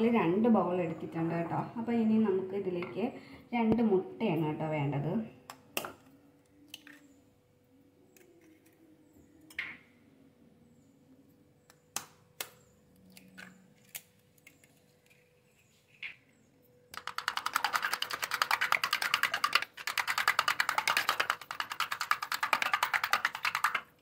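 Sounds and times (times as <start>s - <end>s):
metal spoon beating egg in bowl: 17.0s - 24.0s.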